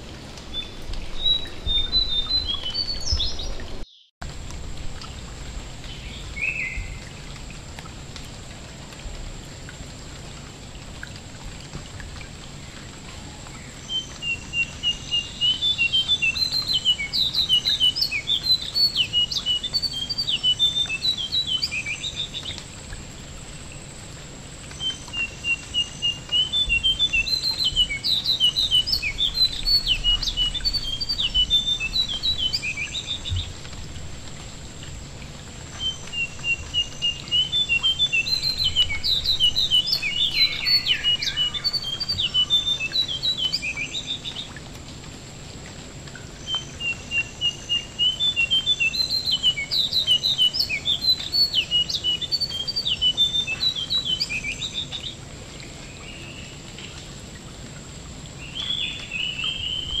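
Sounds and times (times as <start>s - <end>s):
rain pattering on water: 0.0s - 60.0s
bird chirping and trilling: 0.6s - 4.1s, 24.8s - 33.5s, 35.8s - 44.5s.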